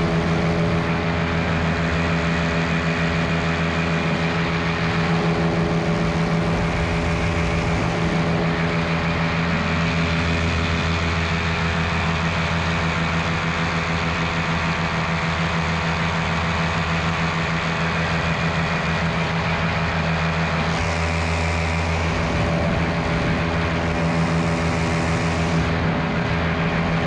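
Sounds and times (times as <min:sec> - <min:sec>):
paramotor engine and propeller: 0:00.0 - 0:27.0.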